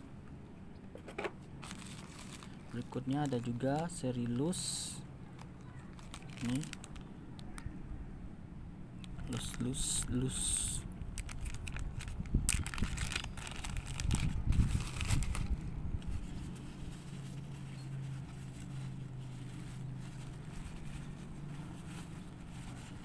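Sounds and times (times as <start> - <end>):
low steady hum: 0.0 - 23.0
paper crinkling: 1.6 - 4.7, 5.3 - 7.6, 11.2 - 23.0.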